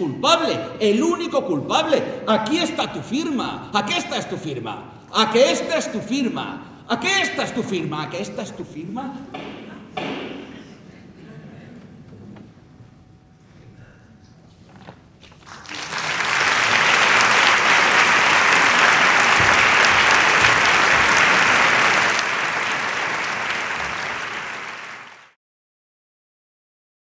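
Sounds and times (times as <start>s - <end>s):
audience applauding: 15.4s - 25.4s.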